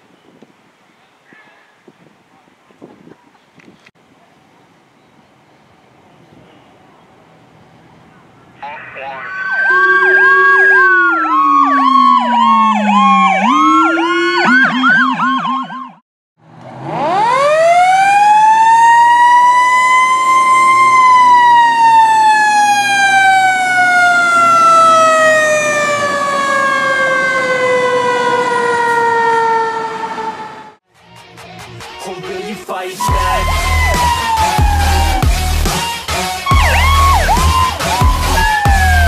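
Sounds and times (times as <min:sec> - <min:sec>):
sirens yelping: 0:08.6 - 0:16.0, 0:16.8 - 0:30.8, 0:33.0 - 0:39.0
siren winding up and down: 0:09.2 - 0:16.0, 0:16.8 - 0:30.8, 0:33.0 - 0:39.0.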